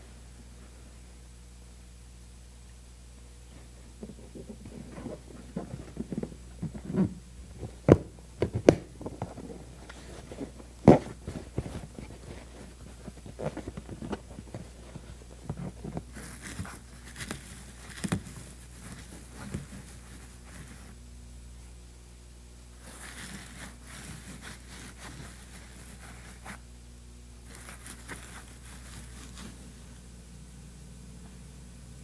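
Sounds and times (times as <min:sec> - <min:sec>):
taps and thumps: 0:04.0 - 0:16.7
leather rustling and creasing: 0:04.0 - 0:20.6.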